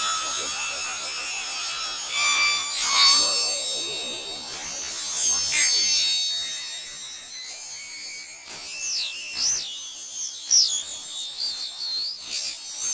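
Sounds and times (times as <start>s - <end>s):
cartoon soundtrack swooping tones: 3.1s - 5.4s.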